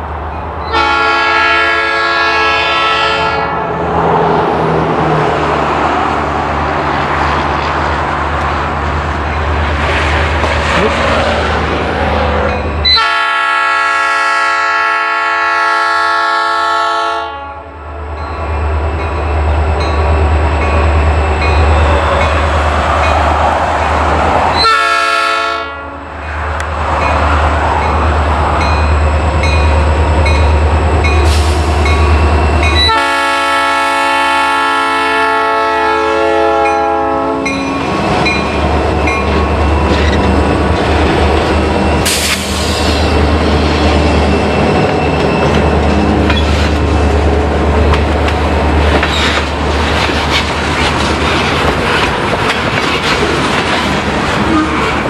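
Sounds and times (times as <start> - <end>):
locomotive engine rumbling: 0.0 - 55.0
train air horn blasts: 0.7 - 3.8, 12.3 - 17.8, 24.6 - 26.1, 32.8 - 37.6
freight cars rolling past: 1.3 - 13.0, 17.8 - 25.4, 26.0 - 34.4, 35.7 - 55.0.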